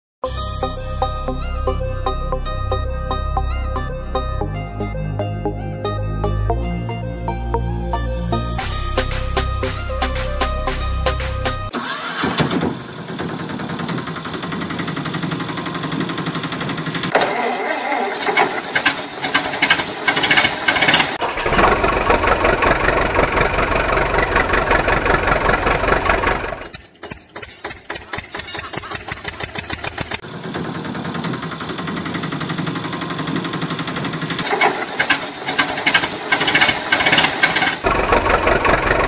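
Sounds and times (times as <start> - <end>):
heavy vehicle engine running: 8.0 - 39.0
rapid even engine knocking: 12.8 - 17.1, 18.0 - 39.0.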